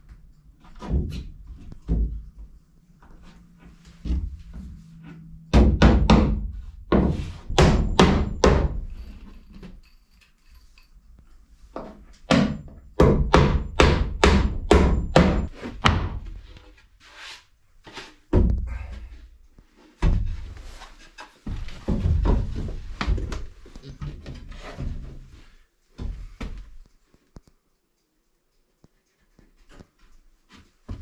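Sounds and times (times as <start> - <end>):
hammer driving nails into wood: 5.6 - 8.8, 12.3 - 16.1.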